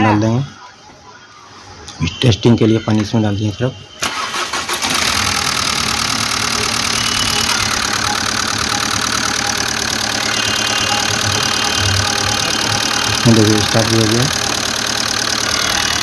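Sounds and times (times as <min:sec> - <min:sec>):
diesel engine idling: 0:04.0 - 0:16.0.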